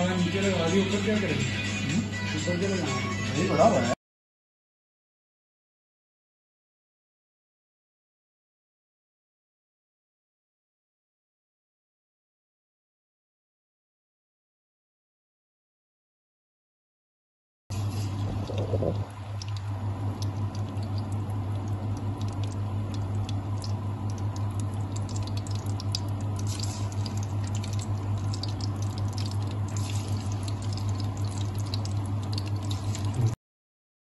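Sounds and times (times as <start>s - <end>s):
fish sizzling in hot oil: 17.7s - 18.4s, 19.0s - 33.3s
constant low hum: 17.7s - 33.4s.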